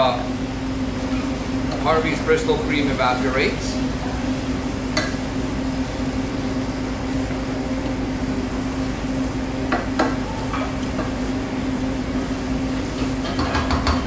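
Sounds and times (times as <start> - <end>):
rice sizzling in a saucepan: 0.7 - 14.0.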